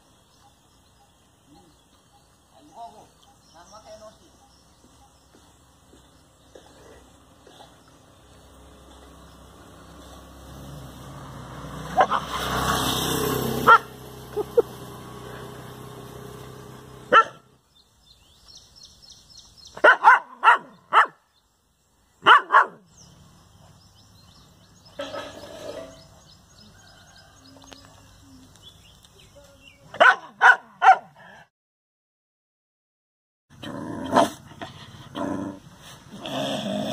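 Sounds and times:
dog barking: 11.9s - 12.4s, 13.6s - 13.9s, 17.1s - 17.5s, 19.8s - 21.2s, 22.2s - 22.8s, 29.9s - 31.2s.

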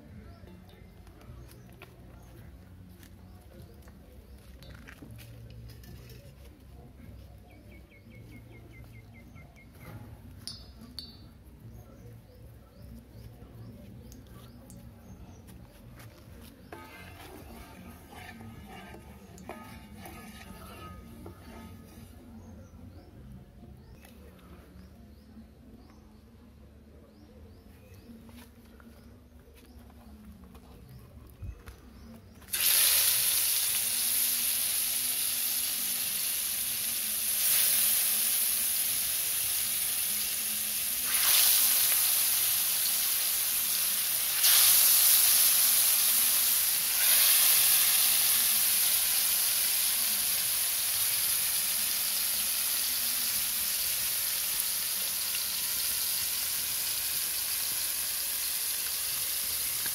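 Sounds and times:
fish frying in hot oil: 32.5s - 59.9s.

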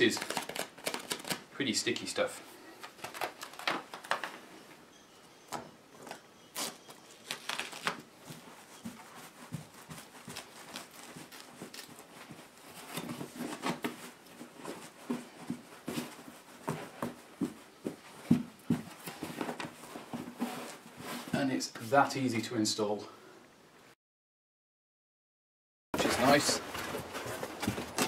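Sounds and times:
felt pad rustling and crinkling: 6.6s - 21.4s.

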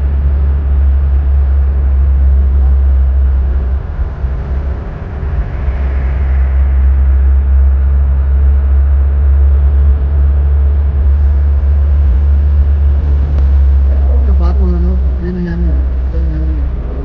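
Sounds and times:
car road and wind noise: 0.0s - 17.0s.

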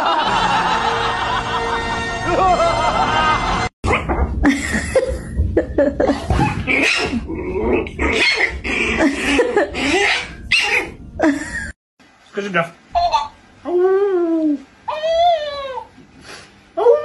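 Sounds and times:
music: 0.2s - 4.3s.

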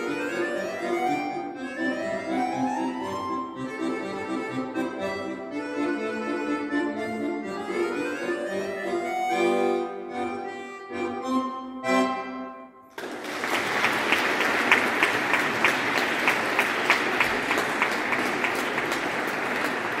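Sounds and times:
button accordion chords: 0.0s - 12.9s
audience applauding: 12.9s - 20.0s.

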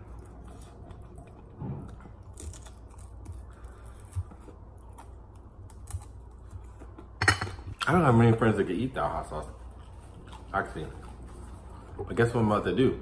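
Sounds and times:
person chewing: 0.0s - 7.8s, 9.4s - 12.1s
low room hum: 0.0s - 13.0s.

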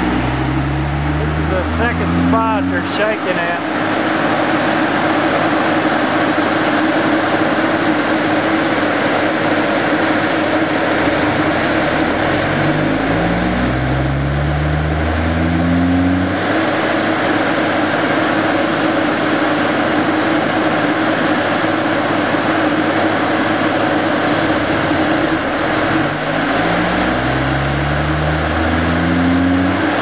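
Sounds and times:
low hum rising in pitch: 0.0s - 4.8s, 10.3s - 17.6s, 23.6s - 30.0s
diesel engines running: 0.0s - 30.0s.

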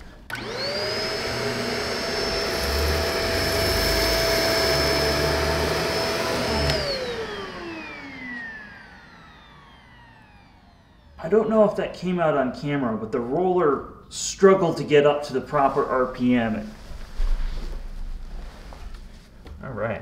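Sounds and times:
vacuum cleaner motor whine: 0.0s - 11.5s.

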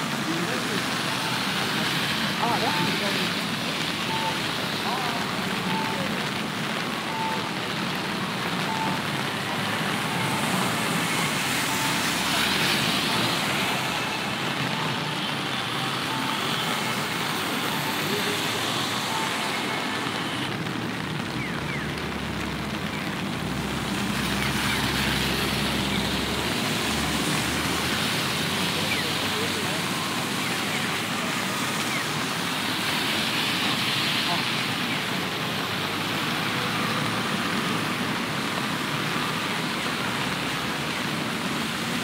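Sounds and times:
rain hiss: 0.0s - 42.0s
wet city traffic: 0.0s - 42.0s
short electronic beeps: 4.0s - 4.5s, 5.7s - 6.1s.

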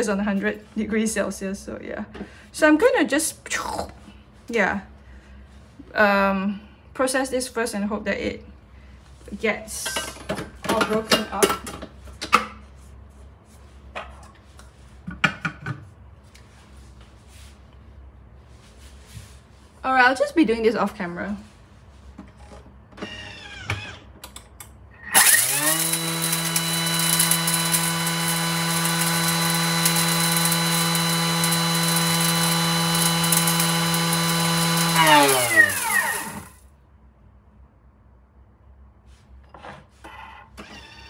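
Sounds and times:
food processor motor grinding: 25.1s - 36.6s.

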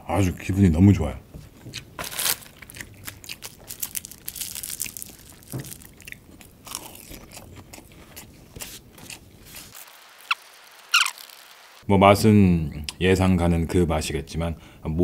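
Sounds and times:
person chewing crunchy food: 1.7s - 11.5s.

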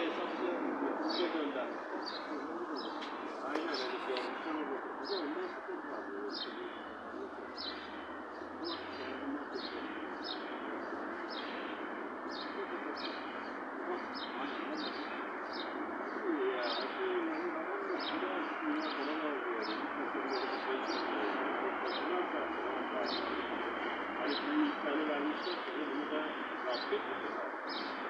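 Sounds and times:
bird chirping: 0.0s - 22.2s
low wavering murmur: 0.0s - 28.0s.

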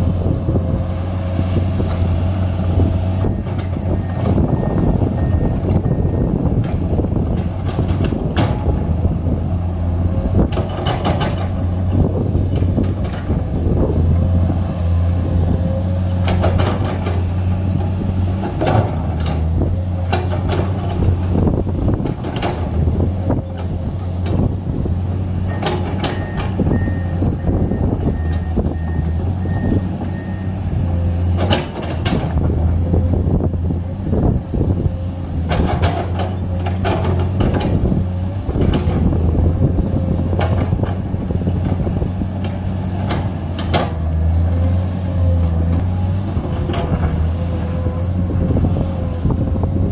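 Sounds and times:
excavator diesel engine under load: 0.0s - 49.9s.

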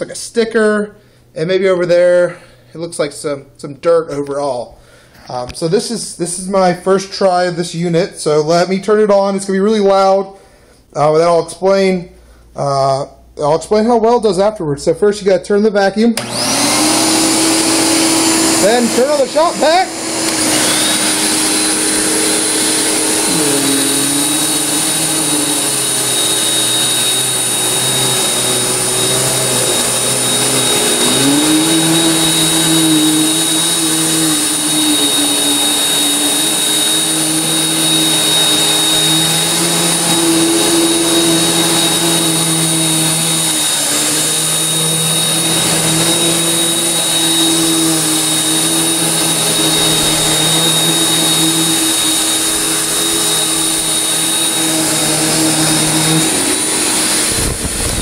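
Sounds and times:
vacuum cleaner whining: 16.2s - 58.0s.

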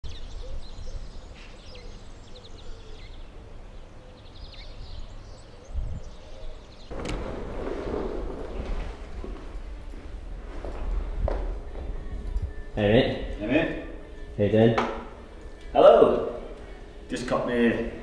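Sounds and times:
small birds chirping: 0.0s - 7.0s
low outdoor rumble: 6.9s - 18.0s.

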